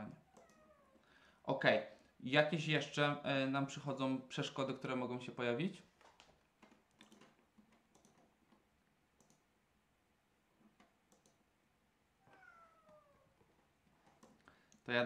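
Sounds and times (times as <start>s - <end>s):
cat meowing: 0.2s - 1.0s, 12.2s - 13.4s
mouse and keyboard clicks: 6.0s - 8.6s, 9.2s - 9.4s, 10.7s - 11.4s, 12.3s - 14.9s.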